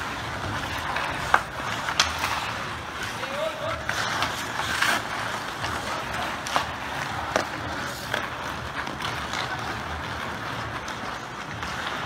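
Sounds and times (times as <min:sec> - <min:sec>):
skates scraping on ice: 0:00.0 - 0:12.0
hockey stick clacking on puck: 0:00.5 - 0:03.3, 0:03.9 - 0:12.0.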